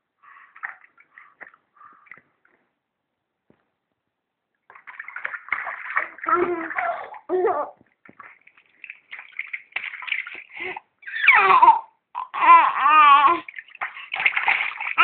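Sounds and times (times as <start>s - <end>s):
water splashing: 0.4s - 2.4s, 4.6s - 10.8s, 13.0s - 15.0s.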